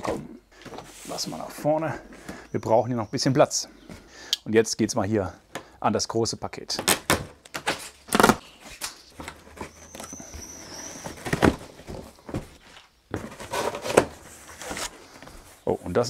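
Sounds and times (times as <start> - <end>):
cardboard ripping: 6.9 - 8.4
cardboard scraping: 9.2 - 15.5.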